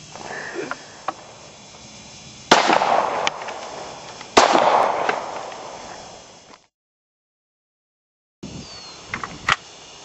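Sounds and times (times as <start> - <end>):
pistol shots with echo: 2.5 - 3.8, 4.4 - 5.8.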